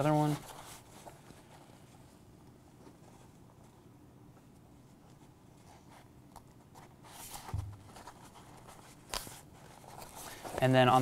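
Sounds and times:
fabric rustling: 0.0s - 11.0s
dull thump: 7.5s - 7.9s.

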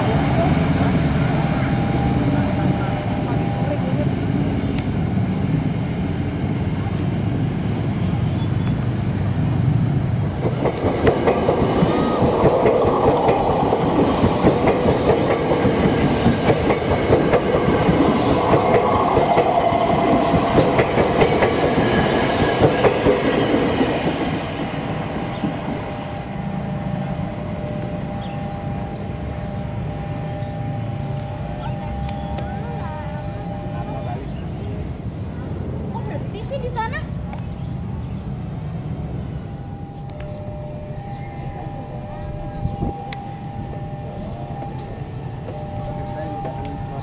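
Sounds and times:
steady high whine: 10.2s - 35.3s, 37.7s - 47.0s
train wheels clicking over rail joints: 10.3s - 25.9s.

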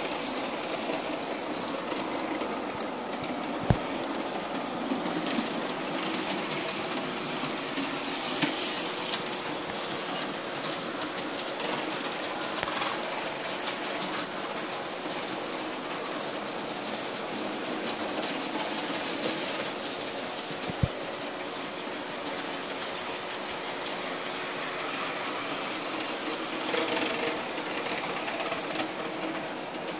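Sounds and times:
wheels clicking over rail joints: 0.0s - 29.9s
model train motor whirring: 22.2s - 29.9s.

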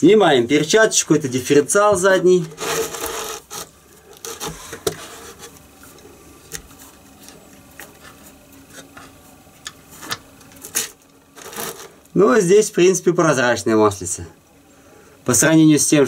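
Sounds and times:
soft rubbing: 2.4s - 12.1s.

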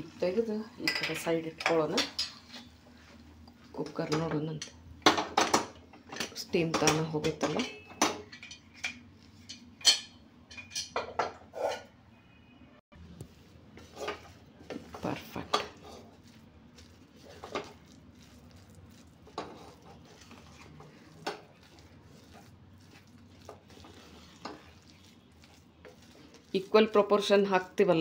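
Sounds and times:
wooden ladle knocking and scraping pot: 13.7s - 28.0s.

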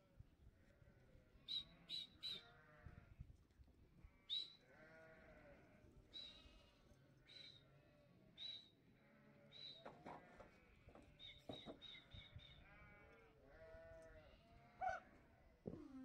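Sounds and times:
sheep and lambs bleating: 1.7s - 3.1s, 4.1s - 6.8s, 8.9s - 9.6s, 12.6s - 15.5s.

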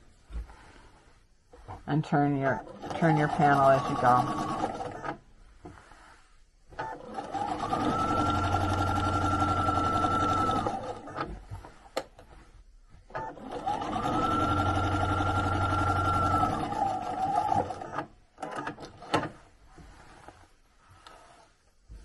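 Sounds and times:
sewing machine whirring: 2.6s - 5.2s, 6.8s - 11.4s, 13.1s - 19.2s.

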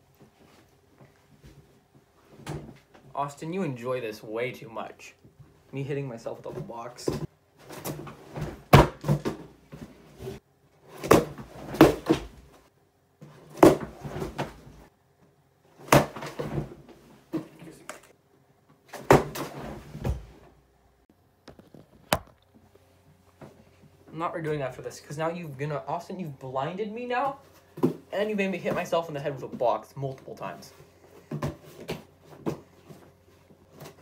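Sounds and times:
cardboard box thumping on head: 8.4s - 9.5s.

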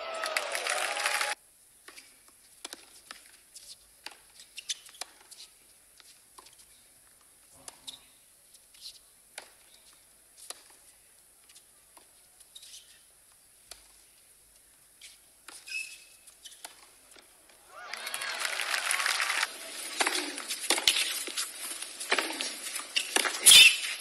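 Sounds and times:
crowd cheering and applause: 0.0s - 1.4s, 17.6s - 20.6s
tennis ball strikes and bounces: 2.6s - 3.2s, 16.4s - 17.6s, 19.7s - 23.7s
shoe squeaks on hard court: 2.7s - 5.6s, 7.7s - 10.8s, 12.4s - 13.1s, 15.0s - 17.0s, 20.0s - 24.0s.

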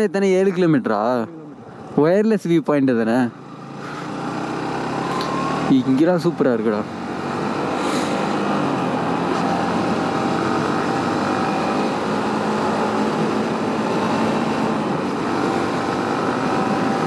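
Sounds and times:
motorcycle engine running: 3.3s - 5.8s.

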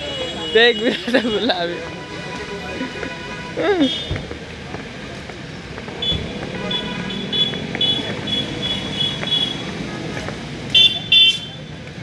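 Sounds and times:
street traffic: 0.0s - 12.0s
vehicle horn toot: 6.0s - 9.6s.

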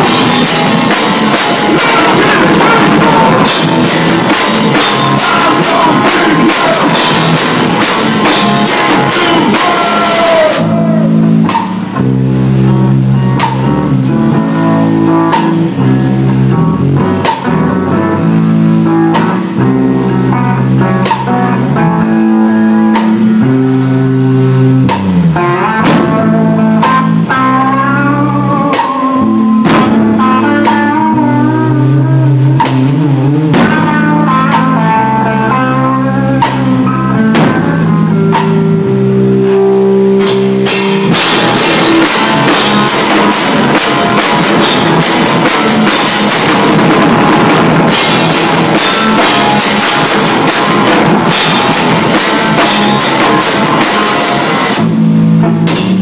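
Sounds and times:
drum hits: 0.0s - 12.1s, 13.4s - 13.8s, 24.8s - 27.2s, 28.7s - 30.9s, 37.3s - 38.6s, 40.3s - 56.0s
distorted electric guitar: 0.0s - 56.0s
drum kit pounding: 0.0s - 56.0s.

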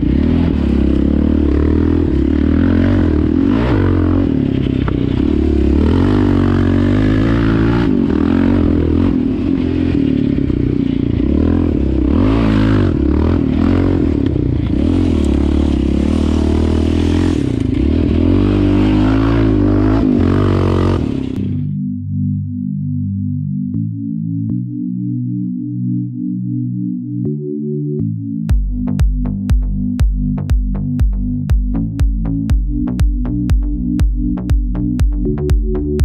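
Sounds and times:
quad engine revving: 0.0s - 21.6s.

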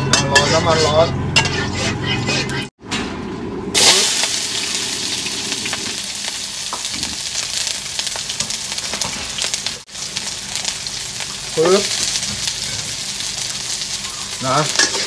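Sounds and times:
spatula scraping wok: 0.0s - 2.7s, 14.3s - 15.0s
vegetables sizzling in oil: 3.8s - 15.0s.

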